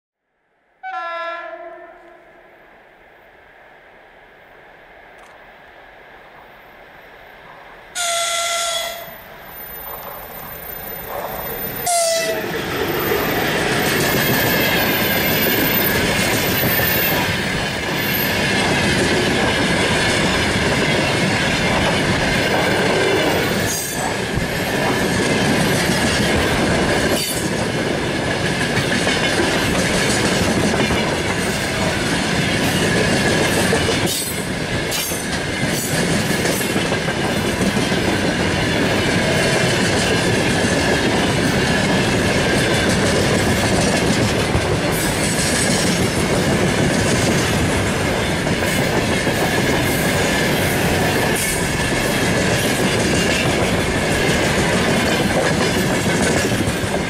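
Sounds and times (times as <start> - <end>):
locomotive horn blasts: 0.8 - 2.4, 8.0 - 9.3, 11.8 - 12.5
high wheel squeal: 8.0 - 16.0
train wheels clattering over rails: 11.0 - 57.0.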